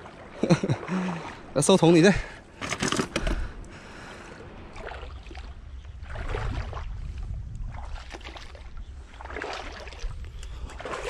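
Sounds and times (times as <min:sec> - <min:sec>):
footsteps wading through water: 0:00.0 - 0:01.6, 0:04.4 - 0:11.0
water sloshing and splashing: 0:00.0 - 0:11.0.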